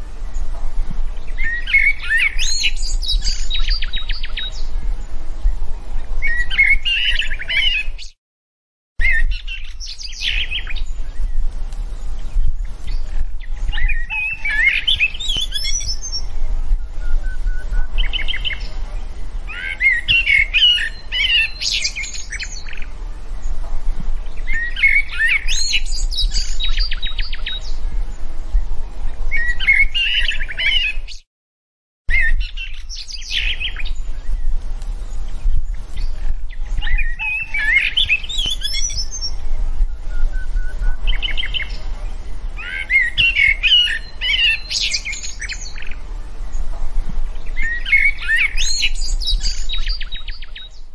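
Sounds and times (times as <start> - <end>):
steady low rumble: 0.0 - 6.7, 22.2 - 29.5, 45.1 - 50.9
songbirds chirping and trilling: 0.0 - 8.2, 9.0 - 31.2, 32.1 - 50.9.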